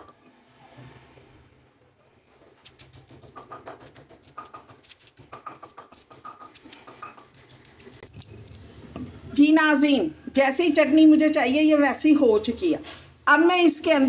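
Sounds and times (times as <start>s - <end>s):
pestle pounding in stone mortar: 2.4s - 8.0s.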